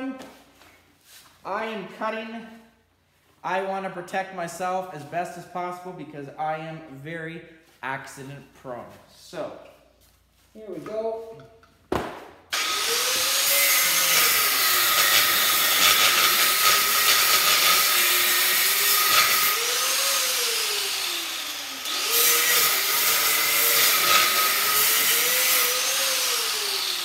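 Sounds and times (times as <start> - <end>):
angle grinder cutting metal: 12.5 - 27.0.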